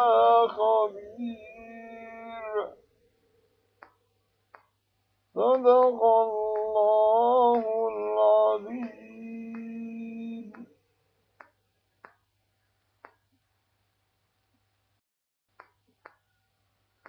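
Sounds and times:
man chanting recitation: 0.0s - 2.8s, 5.4s - 10.7s.

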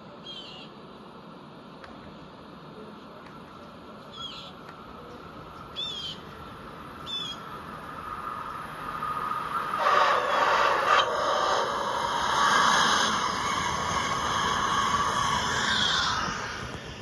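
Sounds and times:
toy train motor whine: 9.1s - 17.0s.

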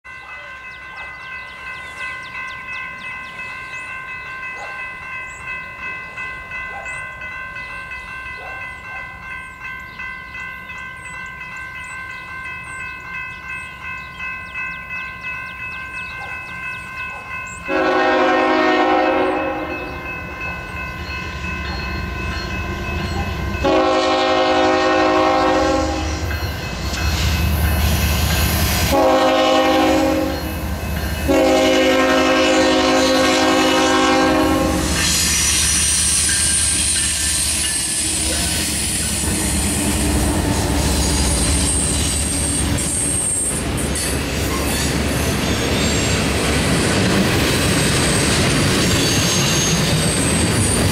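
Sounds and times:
diesel locomotives rumbling past: 0.1s - 50.9s
locomotive air horn blasts: 17.7s - 20.0s, 23.6s - 26.2s, 28.9s - 30.5s, 31.3s - 35.0s
high wheel squeal: 35.0s - 46.2s, 47.9s - 50.9s.

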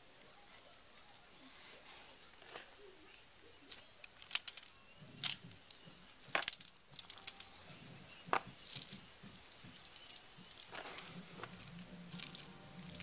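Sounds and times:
plastic parts clicking and rattling: 3.4s - 13.0s.

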